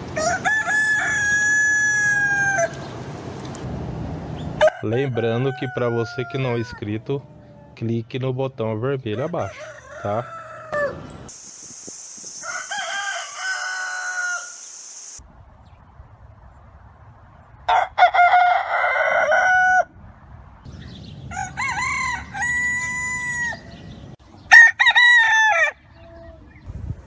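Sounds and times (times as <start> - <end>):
roosters crowing: 0.0 - 2.9, 4.6 - 7.2, 9.1 - 11.3, 12.4 - 14.6, 17.7 - 20.0, 21.2 - 26.1
high hiss: 11.3 - 15.2.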